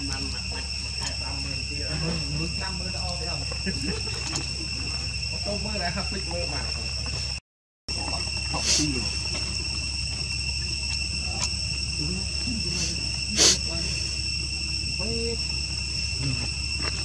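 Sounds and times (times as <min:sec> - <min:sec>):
high-pitched insect drone: 0:00.0 - 0:17.0
short low calls: 0:11.1 - 0:17.0.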